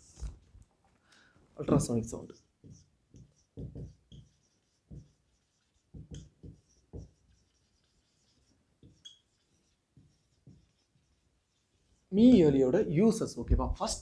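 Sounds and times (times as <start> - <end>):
marker squeaking on whiteboard: 1.8 - 12.5.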